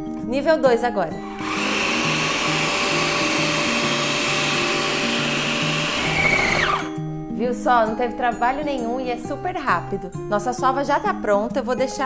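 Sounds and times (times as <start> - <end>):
food processor motor running: 1.3 - 7.0.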